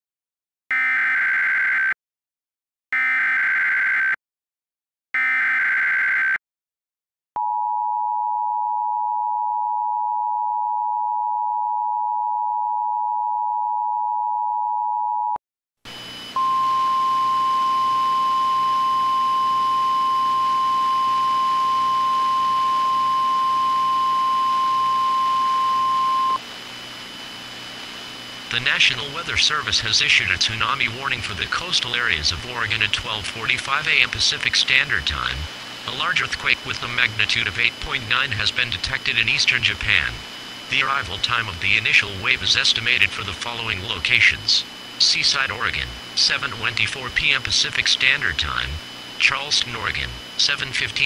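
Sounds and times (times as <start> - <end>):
single-pitch alert tone: 16.4 - 26.4
two-tone attention signal: 16.4 - 26.4
digital header data bursts: 28.5 - 51.0.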